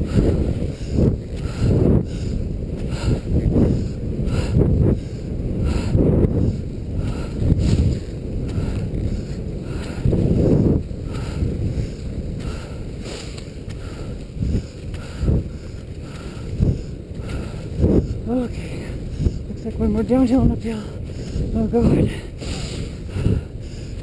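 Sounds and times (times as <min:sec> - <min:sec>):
wind buffeting microphone: 0:00.0 - 0:24.0
skis and poles scraping snow: 0:13.0 - 0:14.0.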